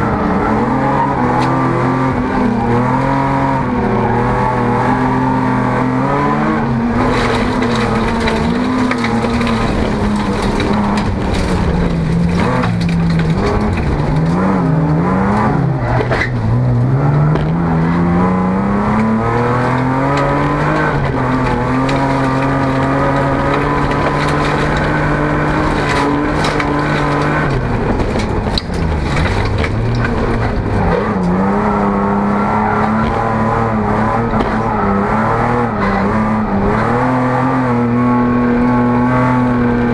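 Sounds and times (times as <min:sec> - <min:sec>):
car engine at racing speed: 0:00.0 - 0:39.9
knocks and rattles: 0:07.0 - 0:17.9, 0:19.0 - 0:31.5.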